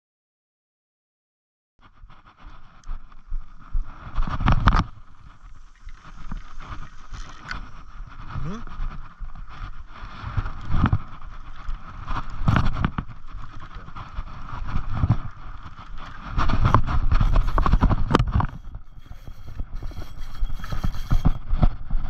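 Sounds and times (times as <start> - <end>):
wind buffeting microphone: 2.8 - 22.0
fishing reel cranking: 17.2 - 21.4.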